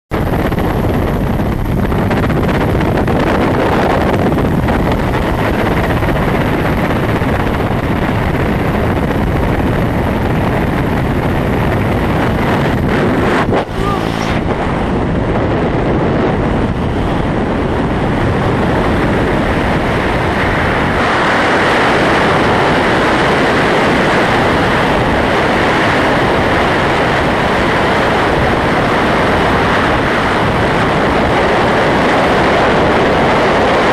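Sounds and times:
air rushing over microphone: 0:00.3 - 0:22.8
helicopter engines and rotor: 0:10.7 - 0:17.6.

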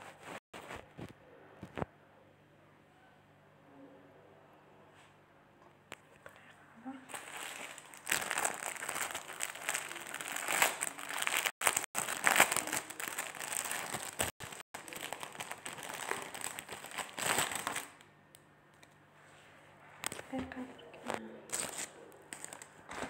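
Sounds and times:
plastic crinkling: 0:07.0 - 0:18.0, 0:20.0 - 0:23.0.

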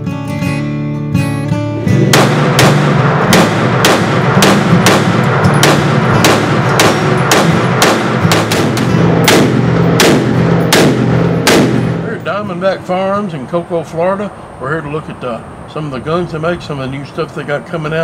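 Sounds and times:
pistol gunshots indoors: 0:02.0 - 0:12.0.

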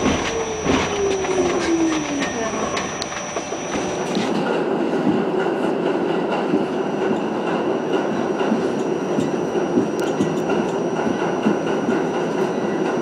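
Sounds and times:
thin high whine: 0:00.0 - 0:04.2
train wheels on rail: 0:00.0 - 0:13.0.

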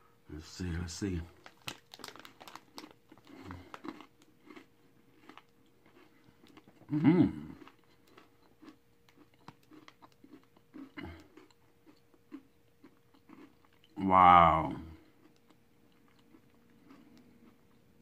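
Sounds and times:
crunchy chewing: 0:01.3 - 0:14.0, 0:14.7 - 0:18.0
person humming: 0:06.9 - 0:07.6.

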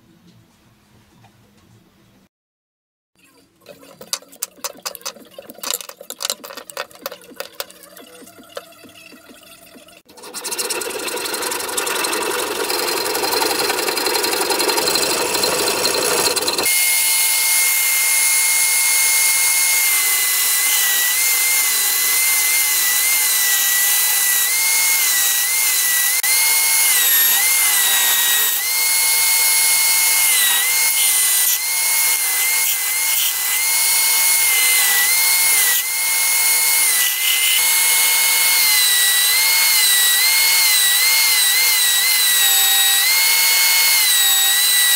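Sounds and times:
hand scraping wooden handle: 0:03.7 - 0:08.6
belt sander whining: 0:03.8 - 0:08.7, 0:10.1 - 0:44.9.

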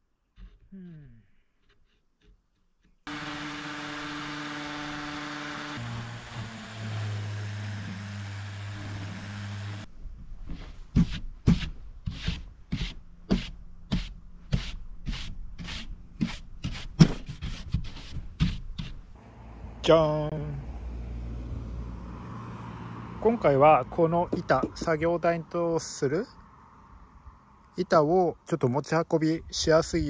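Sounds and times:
electric power tool on wood: 0:03.1 - 0:09.9
rubbing strokes on wood: 0:10.5 - 0:19.1.

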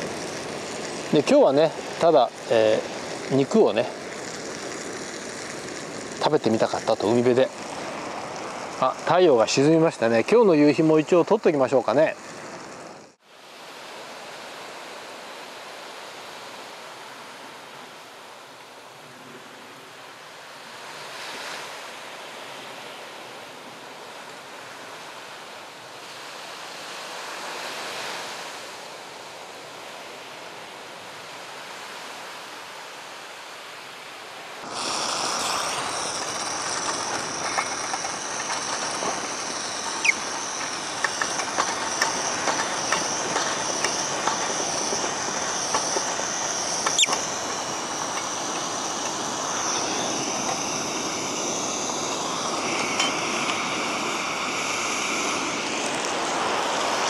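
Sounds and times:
burner clicks and crackles: 0:00.0 - 0:13.2, 0:34.6 - 0:57.0
gas burner roaring hiss: 0:00.0 - 0:32.5, 0:34.4 - 0:57.0
sea waves on shore: 0:00.0 - 0:57.0.

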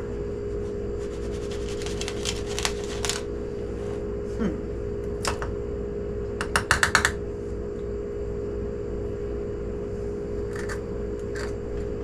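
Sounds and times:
steady background hum: 0:00.0 - 0:12.0.

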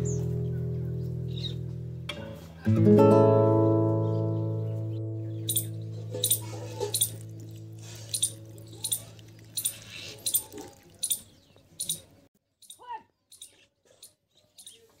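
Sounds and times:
water splashing onto soil: 0:06.6 - 0:11.3.

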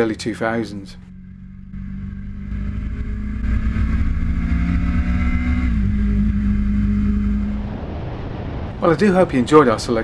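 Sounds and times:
motorcycle engine at road speed: 0:00.0 - 0:08.2
wind rumble on microphone: 0:03.2 - 0:10.0.

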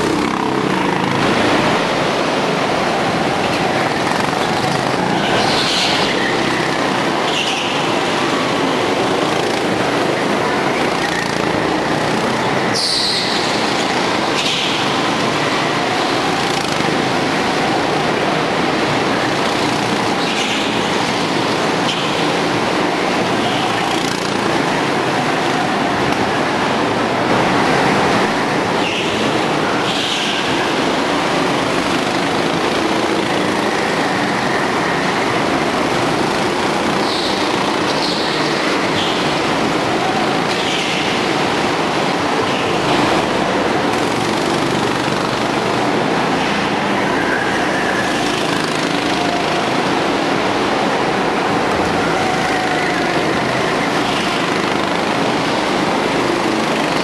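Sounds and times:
go-kart engines droning: 0:00.0 - 0:57.0
tyre squeals: 0:12.7 - 0:14.8.

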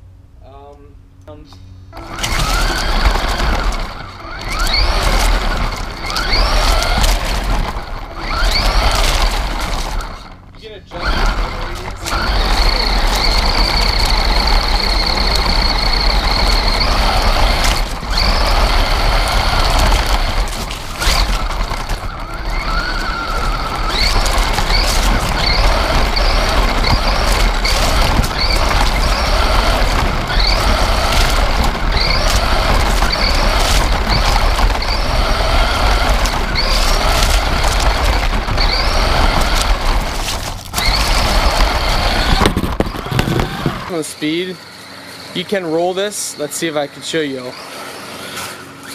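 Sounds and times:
wheels rumbling on wooden boards: 0:01.4 - 0:48.9
electric motor whine: 0:01.7 - 0:48.9.

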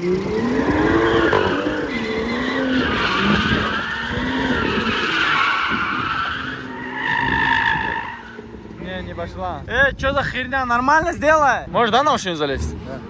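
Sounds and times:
car engine revving: 0:00.0 - 0:09.7
tyres squealing: 0:00.7 - 0:08.8.

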